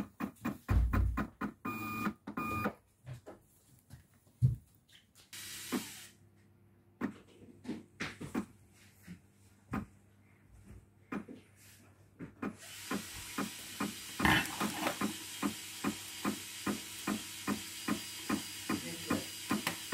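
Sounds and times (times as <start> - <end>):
label printer hiss: 5.4 - 6.2, 12.5 - 19.9.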